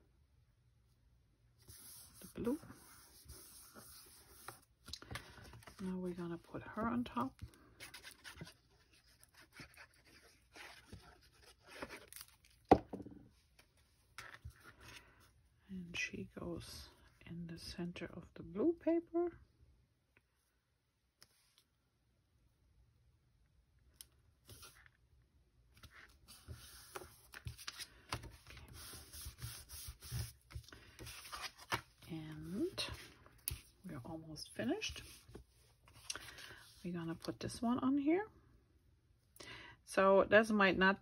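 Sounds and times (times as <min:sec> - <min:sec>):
paper rustling: 0:07.2 - 0:12.7, 0:25.8 - 0:33.8.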